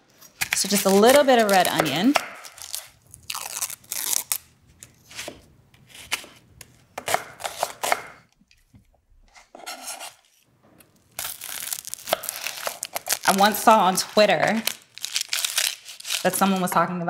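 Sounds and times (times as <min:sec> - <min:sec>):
knife chopping on wooden board: 0:01.7 - 0:02.6, 0:07.0 - 0:08.2
knife scraping board: 0:05.0 - 0:06.4, 0:07.0 - 0:08.2, 0:09.3 - 0:10.4.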